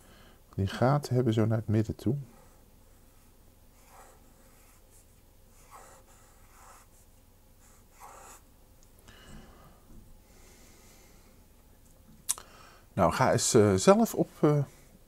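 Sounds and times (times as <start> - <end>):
pen scratching on paper: 2.3 - 7.0, 7.6 - 8.4.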